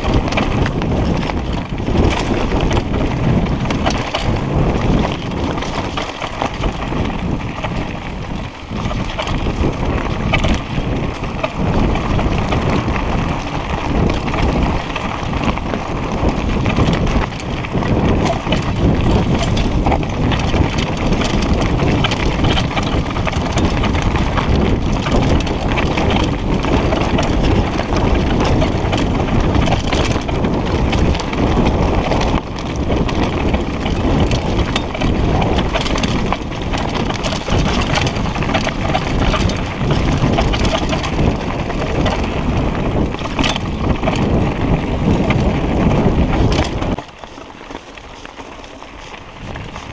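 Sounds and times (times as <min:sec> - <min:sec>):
bike rattling over bumps: 0:00.0 - 0:49.9.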